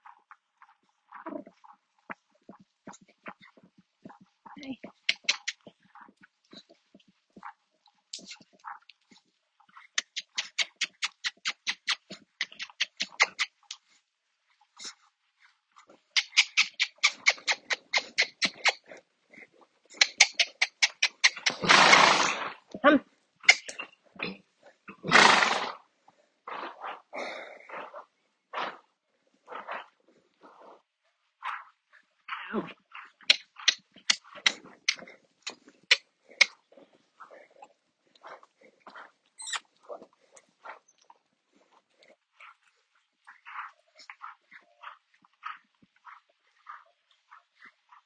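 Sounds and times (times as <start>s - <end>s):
sharp clicks: 20.0s - 21.7s
soft scattered noises: 26.0s - 48.0s.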